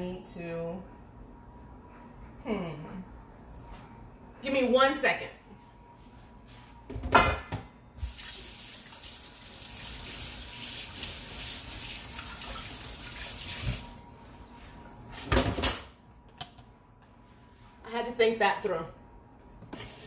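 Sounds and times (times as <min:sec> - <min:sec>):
tap water running: 0:08.0 - 0:14.4.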